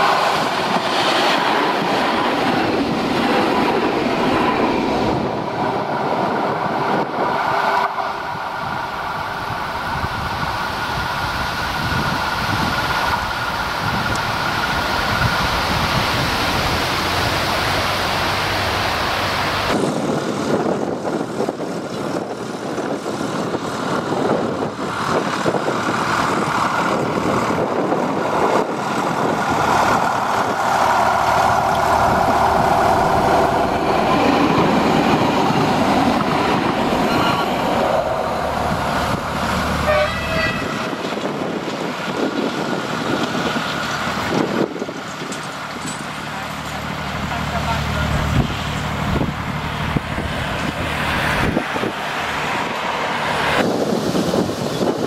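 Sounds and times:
diesel train engine: 0.0 - 55.0
train wheels on rails: 0.0 - 55.0.

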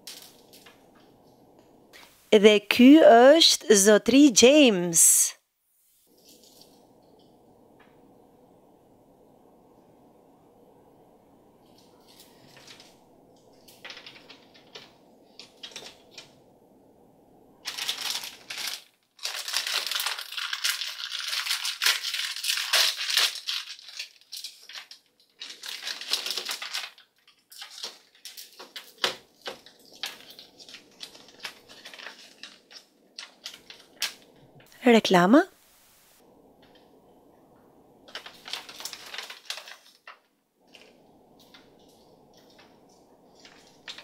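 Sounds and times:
plastic bag crinkling: 17.6 - 34.6, 38.1 - 44.0.

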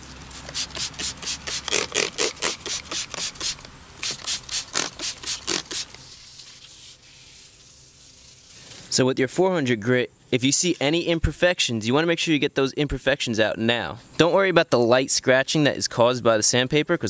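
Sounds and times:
spray bottle squirting: 0.3 - 8.8
wet sandpaper rubbing: 0.3 - 8.9.

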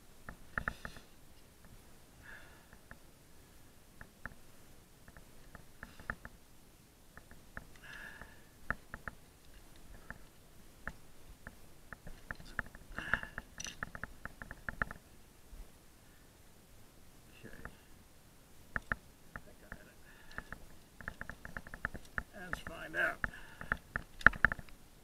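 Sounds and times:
rope and gloves rustling: 7.2 - 15.8, 18.7 - 24.8
metal carabiners clicking: 12.1 - 14.9.

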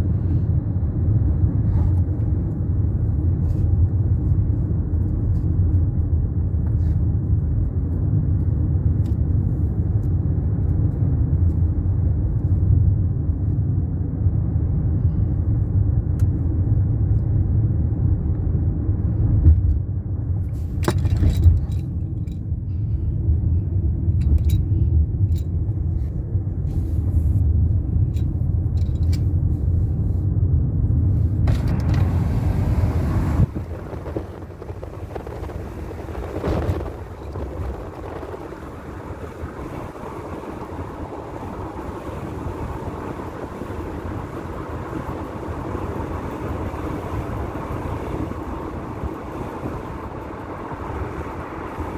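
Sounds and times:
car cabin rumble: 19.2 - 51.9.

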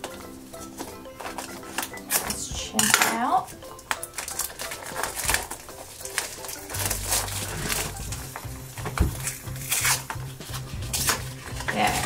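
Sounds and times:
plastic packaging crinkling: 3.4 - 12.0.

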